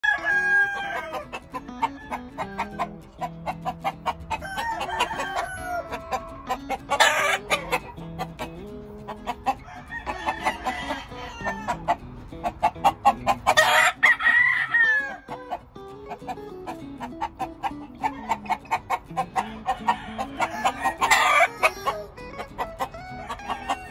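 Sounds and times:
rooster crowing: 0.0 - 3.0, 4.3 - 7.8, 9.5 - 11.9, 13.5 - 15.3, 19.4 - 22.0, 23.0 - 23.9
background music with steady beat: 0.0 - 21.4.

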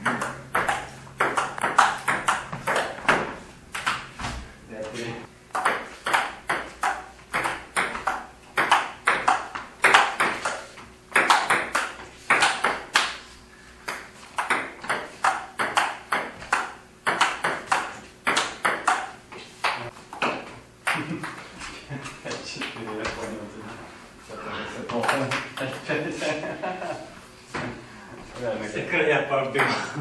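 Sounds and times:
table tennis ball clicking: 0.1 - 4.0, 5.5 - 13.1, 13.9 - 19.2.

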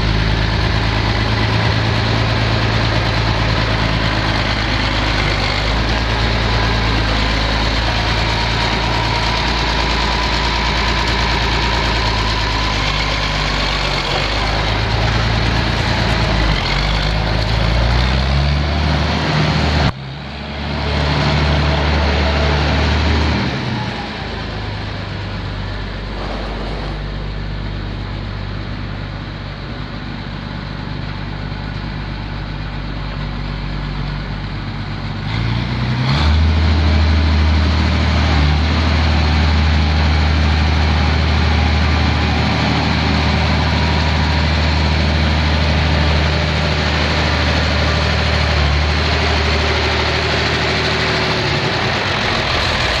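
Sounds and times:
tractor engine running: 0.0 - 53.0.

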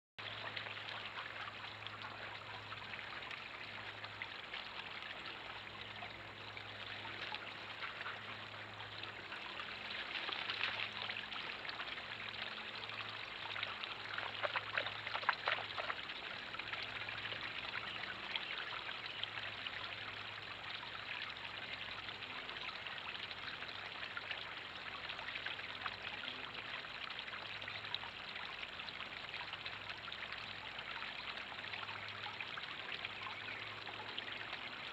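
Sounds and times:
small waterfall splashing: 0.2 - 34.9
dog lapping water: 14.2 - 16.0.

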